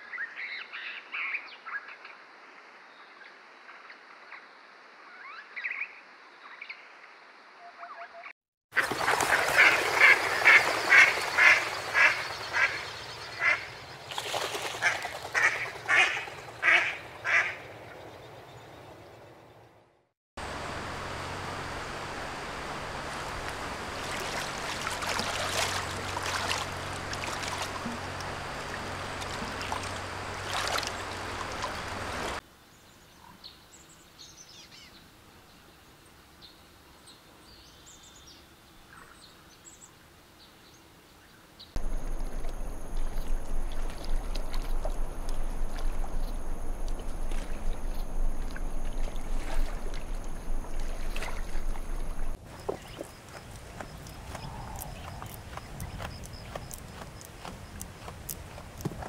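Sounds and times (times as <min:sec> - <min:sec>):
stream running over rocks: 0:08.7 - 0:15.9, 0:20.4 - 0:32.4, 0:41.8 - 0:59.0
low hum: 0:20.4 - 0:32.4, 0:41.8 - 0:52.4.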